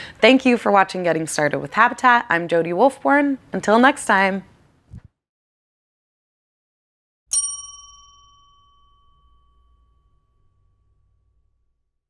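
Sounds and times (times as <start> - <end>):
bell-like chime: 7.3 - 11.6.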